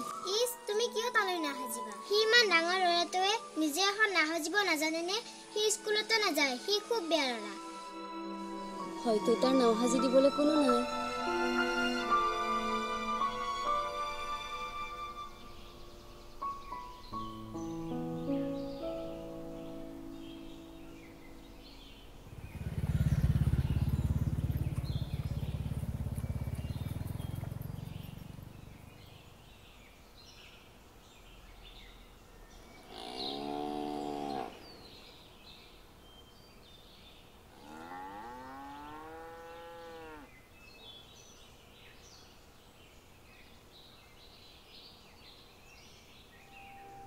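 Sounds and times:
birds chirping faintly: 0.0 - 47.0
loud low rumble: 22.3 - 29.1
cattle mooing: 32.9 - 34.6, 37.6 - 40.3.

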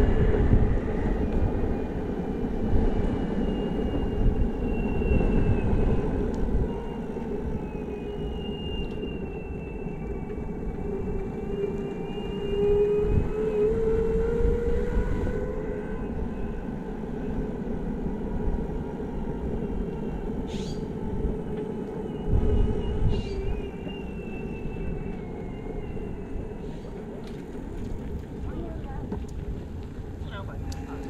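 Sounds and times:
wind buffeting microphone: 0.0 - 31.0
wheel rumble on pavement: 14.7 - 31.0.

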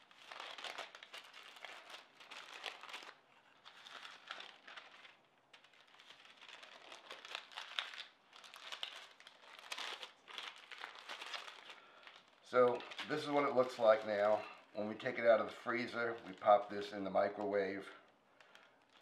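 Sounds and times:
wax paper crinkling: 0.0 - 19.0.

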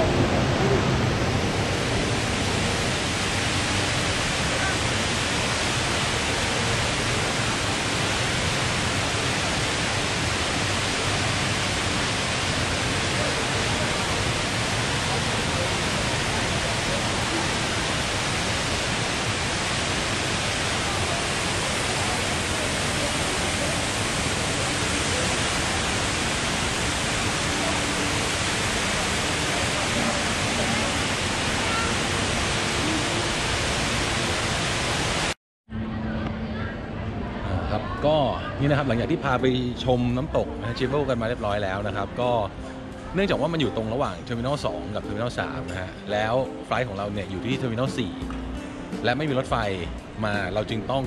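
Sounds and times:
indoor waterfall pouring: 0.0 - 35.4.

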